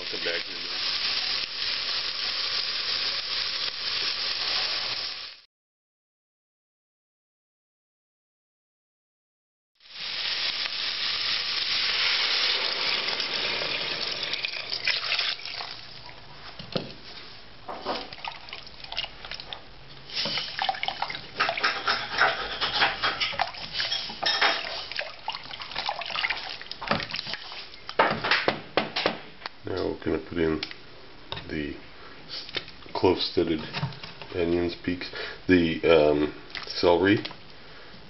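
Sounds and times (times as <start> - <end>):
water rushing into pot: 0.0 - 5.4, 9.8 - 16.2, 17.9 - 27.8
spoon stirring bones in pot: 20.4 - 27.6.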